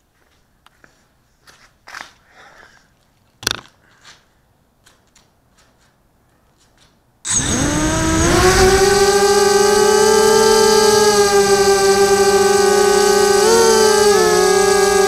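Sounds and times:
quadcopter motors buzzing whine: 7.3s - 15.0s.

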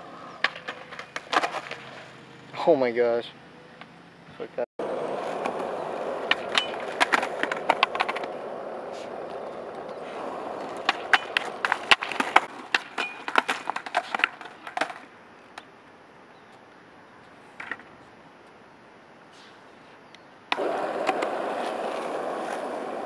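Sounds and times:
skateboard scrape: 0.0s - 2.2s, 4.8s - 15.0s, 19.3s - 23.0s
skateboard wheels rolling: 0.0s - 2.2s, 4.8s - 15.7s, 19.4s - 23.0s
skateboard clacks: 0.4s - 1.9s, 5.1s - 15.7s, 20.5s - 23.0s.

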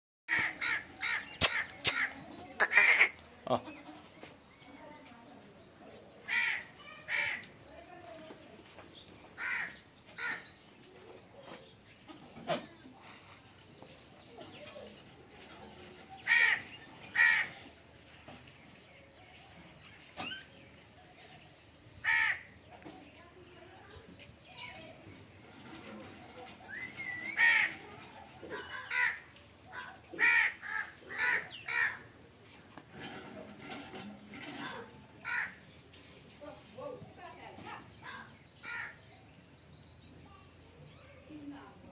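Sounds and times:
crows cawing: 0.3s - 3.2s, 6.3s - 7.5s, 9.4s - 10.5s, 16.3s - 17.6s, 22.0s - 22.5s, 27.3s - 27.8s, 28.8s - 29.3s, 30.2s - 32.1s, 35.2s - 35.6s, 38.6s - 39.0s
small birds chirping: 0.3s - 41.9s
crow cawing: 2.6s - 3.2s, 6.3s - 7.4s, 9.4s - 10.4s, 22.1s - 22.5s, 28.8s - 29.2s, 35.2s - 35.6s.

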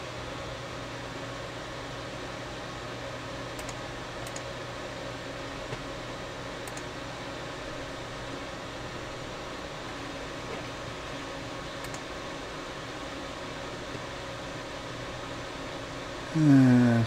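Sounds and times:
computer fans whirring: 0.0s - 17.0s
mouse clicks: 3.6s - 4.5s, 6.6s - 6.9s, 11.8s - 12.0s.

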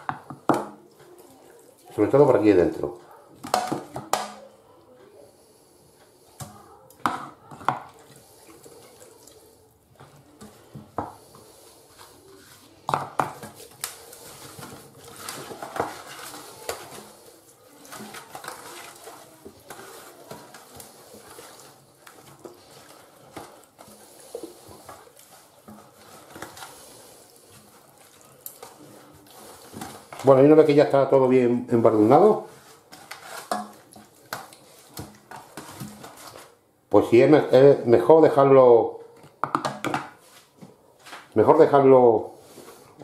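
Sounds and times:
wet slapping and squelching: 7.9s - 9.4s, 13.4s - 30.3s.

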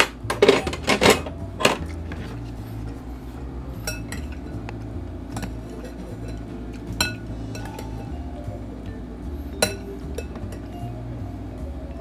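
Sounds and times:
tableware clattering: 0.0s - 2.5s, 3.8s - 4.6s, 5.3s - 8.2s, 9.6s - 10.8s
metal spoon clinking glass bowl: 3.8s - 4.6s, 5.3s - 8.2s, 9.6s - 10.7s.

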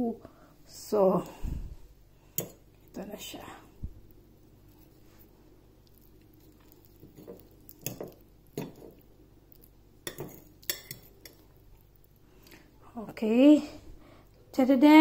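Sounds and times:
fork and knife clinking on plate: 10.1s - 11.4s.

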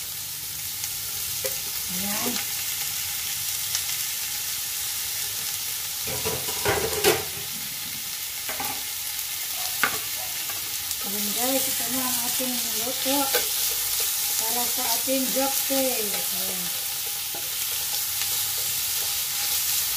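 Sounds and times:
food sizzling in a frying pan: 0.0s - 19.9s.

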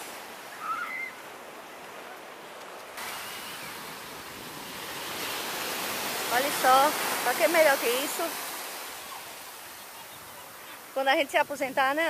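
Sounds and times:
surf breaking on sandy beach: 0.0s - 12.0s.

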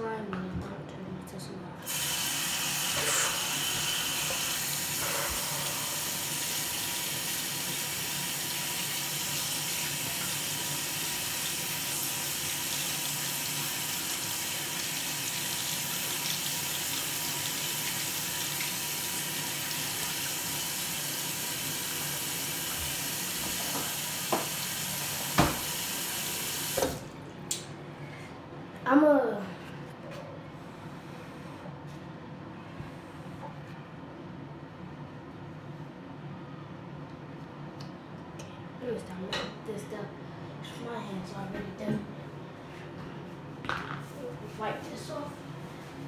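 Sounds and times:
tap water running into sink: 1.9s - 5.0s, 5.9s - 27.1s.

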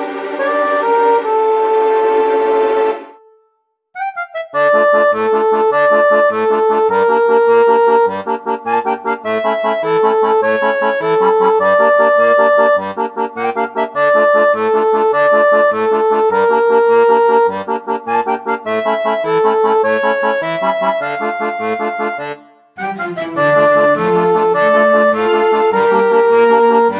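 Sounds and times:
lively instrumental music: 0.0s - 26.9s.

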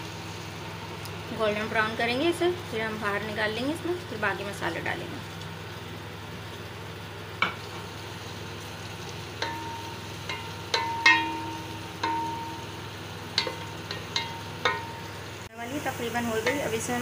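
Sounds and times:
onions sizzling in a pot: 0.0s - 17.0s
spoon knocking against metal pot: 9.4s - 12.6s, 13.4s - 15.0s.

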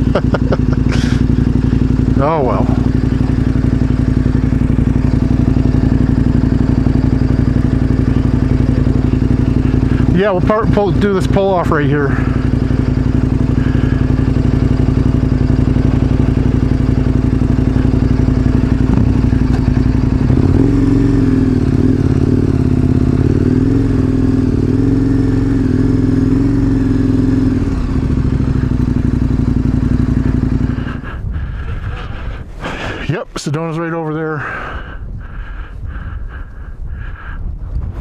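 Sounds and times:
motorcycle engine running: 0.0s - 38.0s.

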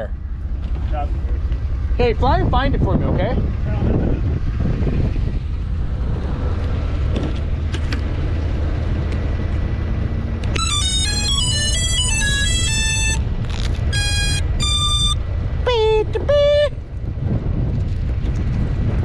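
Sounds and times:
low rumble of wind: 0.0s - 19.0s
electronic music with synth notes: 10.5s - 15.2s.

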